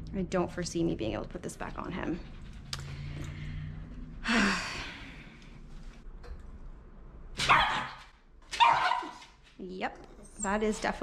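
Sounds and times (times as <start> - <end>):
dog barking harshly: 7.4 - 9.2.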